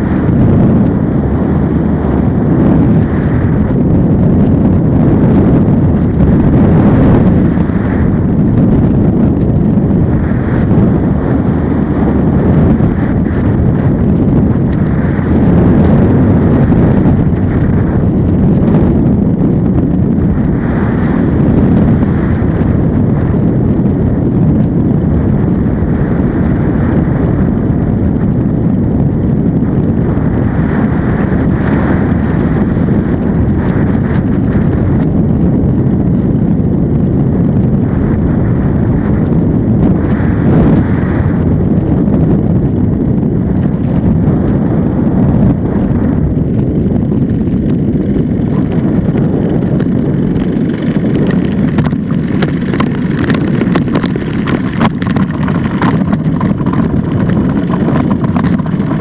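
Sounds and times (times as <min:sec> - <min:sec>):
propeller engine running: 0:00.0 - 0:59.0
wind rush on microphone: 0:00.0 - 0:59.0
rattles and knocks: 0:53.6 - 0:59.0.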